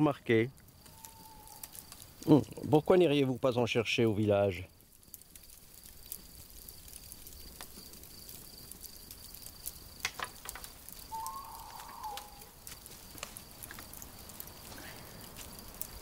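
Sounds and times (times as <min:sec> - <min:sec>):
campfire crackling: 0:00.0 - 0:16.0
high cricket trill: 0:11.0 - 0:12.8.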